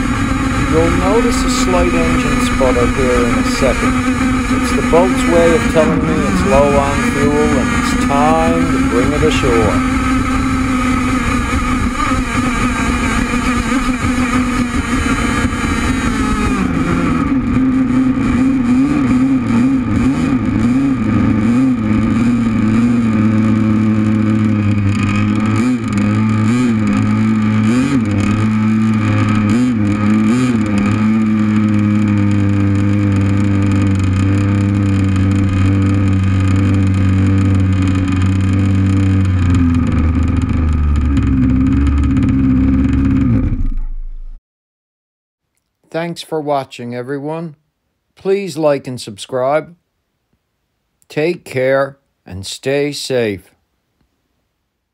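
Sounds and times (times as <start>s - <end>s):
model boat engine running: 0.0s - 43.7s.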